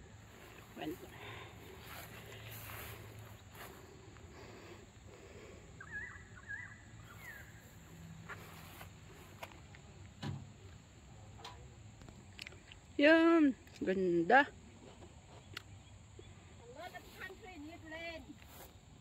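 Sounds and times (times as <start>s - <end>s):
distant bird chirping: 0.8s - 8.2s.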